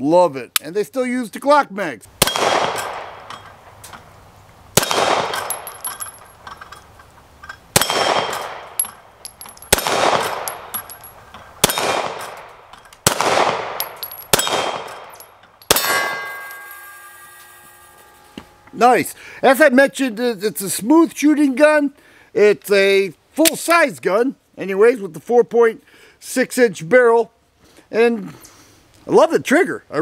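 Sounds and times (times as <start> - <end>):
pistol shots echoing: 2.2 - 3.3, 4.8 - 5.9, 7.7 - 8.8, 9.7 - 10.9, 11.6 - 16.4
steel targets pinging: 4.8 - 18.6.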